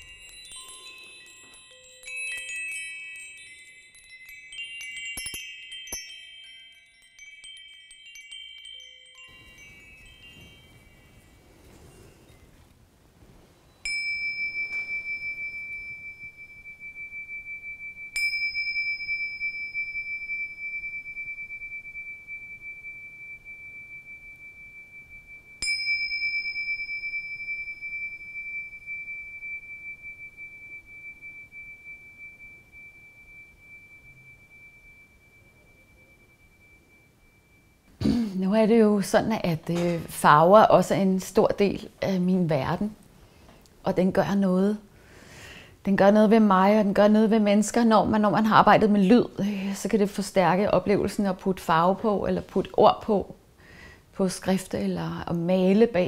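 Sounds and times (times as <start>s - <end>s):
tingsha cymbals ringing: 0.0s - 12.6s, 13.6s - 38.0s
metal wind chimes tinkling: 0.0s - 12.7s, 13.6s - 43.4s, 44.4s - 56.0s.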